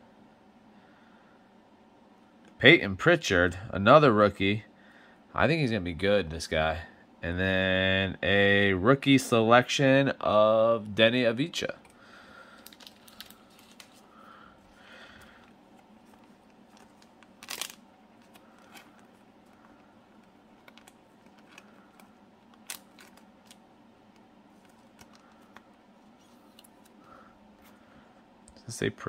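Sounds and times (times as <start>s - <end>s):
plastic sleeve crinkling: 11.8s - 27.8s.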